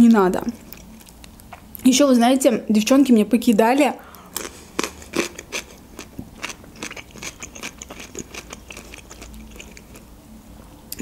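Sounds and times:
chewing cucumber: 0.4 - 1.8, 4.3 - 10.1.

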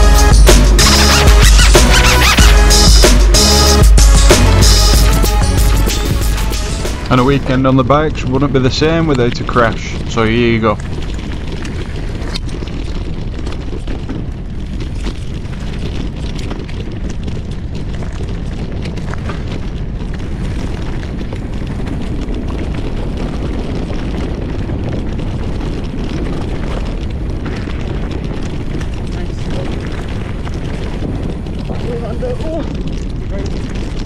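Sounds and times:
tyres on dirt and stones: 4.0 - 34.0
wind buffeting microphone: 6.8 - 34.0
bike clacking and rattling: 7.9 - 34.0.

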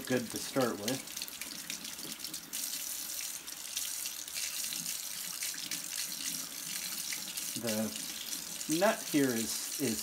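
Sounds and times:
faucet running into sink: 0.0 - 10.0.

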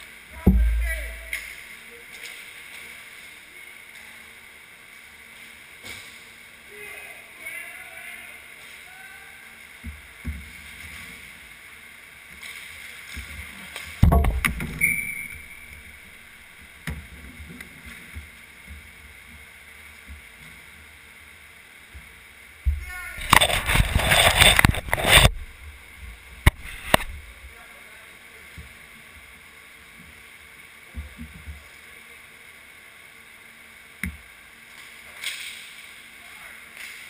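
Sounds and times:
loud knock: 0.4 - 1.2, 14.0 - 14.8
skates sticks and puck knocking: 22.7 - 25.3
leg pad scraping rumble: 22.8 - 25.6.

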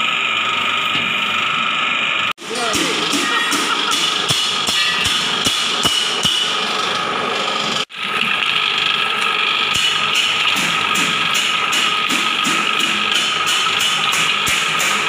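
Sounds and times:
stirring machine motor hum: 6.6 - 15.0.

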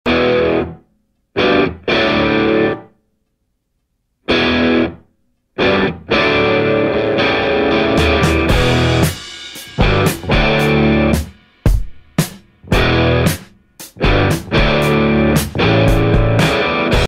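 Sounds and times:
distorted electric guitar chords: 0.1 - 2.9, 4.3 - 5.0, 5.6 - 11.4, 12.6 - 17.0.

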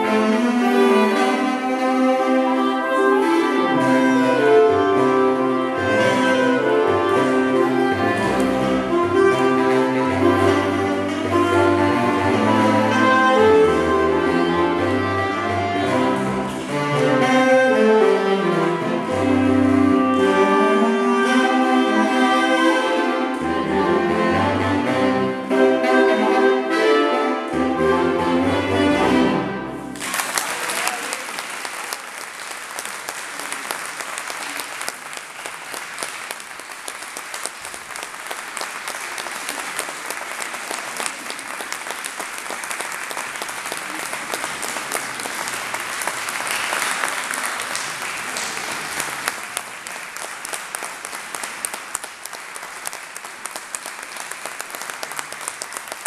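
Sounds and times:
baritone saxophone bass line: 0.0 - 29.9
saxophone quartet playing: 0.0 - 30.0
audience applause: 29.9 - 56.0.

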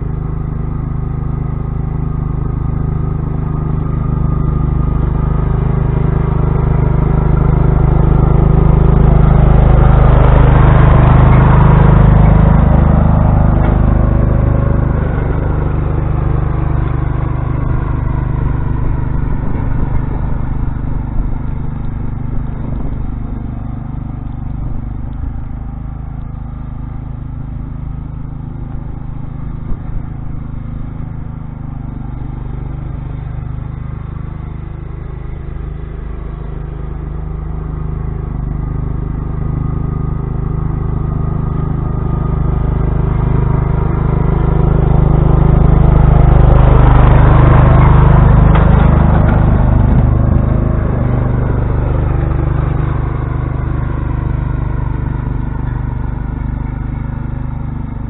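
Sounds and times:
lawn tractor engine running: 0.0 - 58.0.

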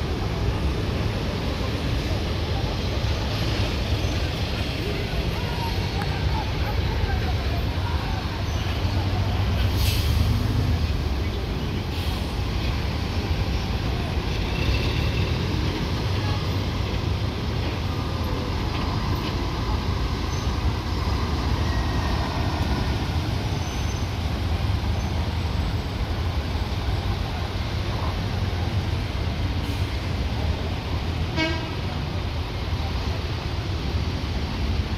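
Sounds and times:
road traffic: 0.0 - 34.9.

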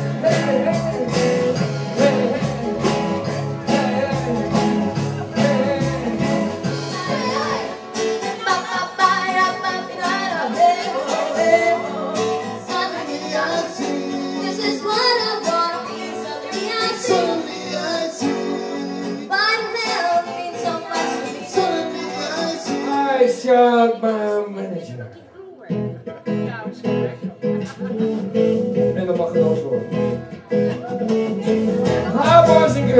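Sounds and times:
strummed acoustic guitar: 0.0 - 24.8, 25.6 - 32.9
woman singing into microphone: 5.3 - 22.8.

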